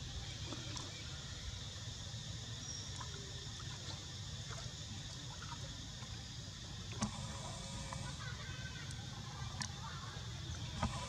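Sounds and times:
water lapping in stone channel: 8.9 - 11.0.

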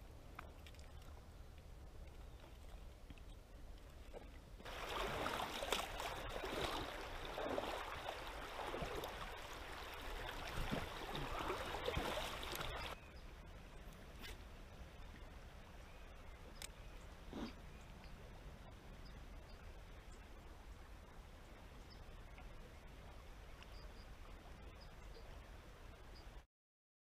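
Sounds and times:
water splashing and gurgling: 4.0 - 13.0.

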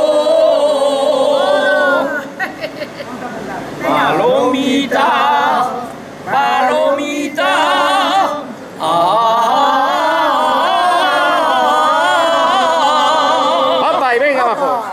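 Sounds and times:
men singing unaccompanied: 0.0 - 2.4, 3.8 - 14.9.

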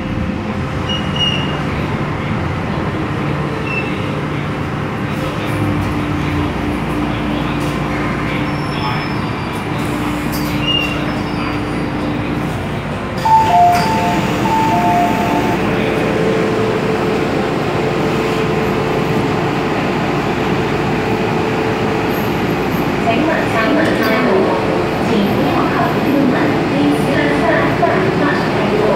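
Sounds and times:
train equipment hum: 0.0 - 28.9
electronic two-note chime: 13.2 - 15.6.

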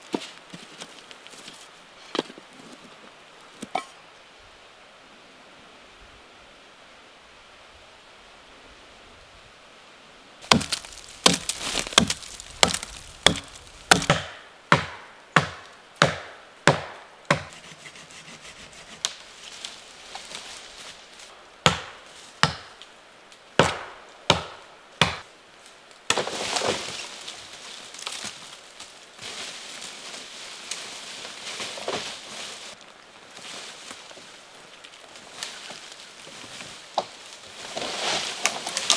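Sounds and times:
crackling and rustling: 0.0 - 3.8, 10.4 - 14.0, 25.6 - 38.9
axe chopping wood: 10.4 - 17.5, 21.6 - 22.7, 23.6 - 25.2.

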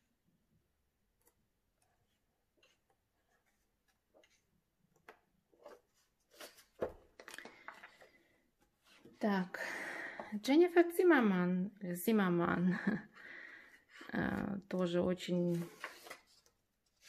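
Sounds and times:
paper pages turning: 2.0 - 8.2, 15.4 - 17.0.

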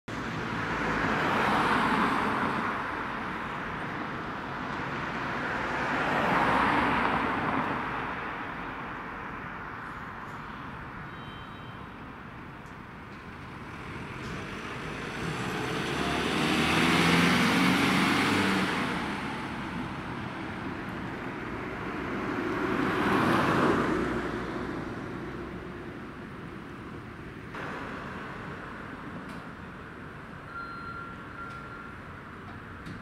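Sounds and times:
second vehicle passing: 13.5 - 24.8.

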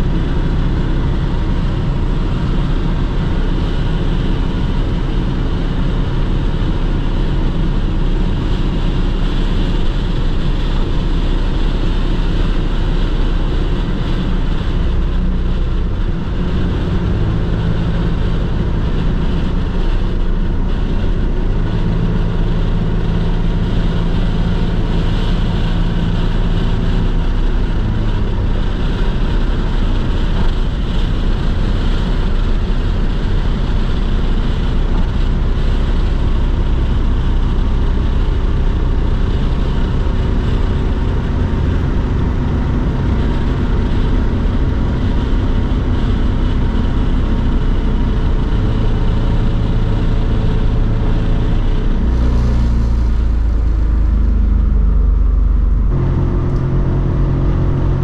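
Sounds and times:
car engine drone: 0.0 - 58.0
wind noise: 0.0 - 58.0.

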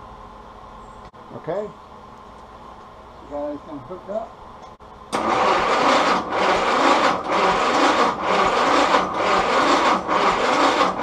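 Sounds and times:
engine cranking by starter motor: 5.1 - 11.0.

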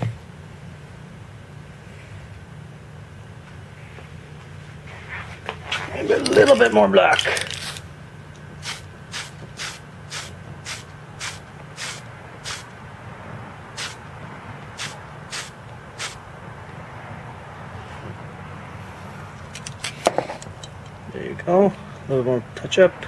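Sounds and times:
paint spraying in short puffs: 8.6 - 12.7, 13.8 - 14.0, 14.8 - 16.2.

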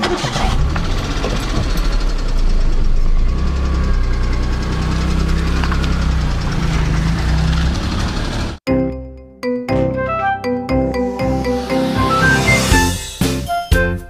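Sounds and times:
car engine idling: 0.0 - 8.6.

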